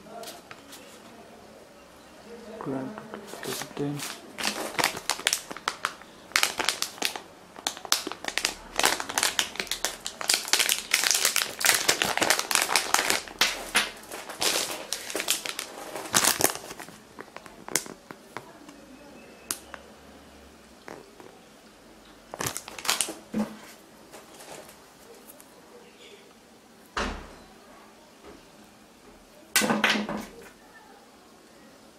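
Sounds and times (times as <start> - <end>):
plastic pouch crinkling: 3.1 - 18.7, 22.3 - 25.5.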